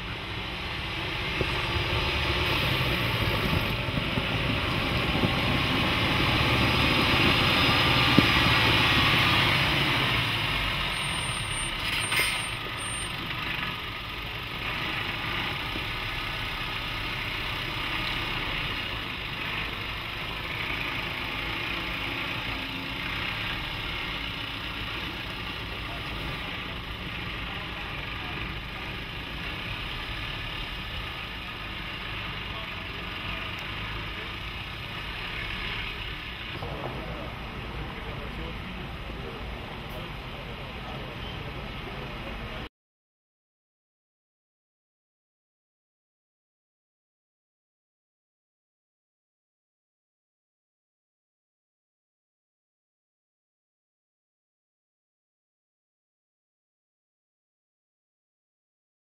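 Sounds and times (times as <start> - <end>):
diesel truck engine running: 0.0 - 42.7.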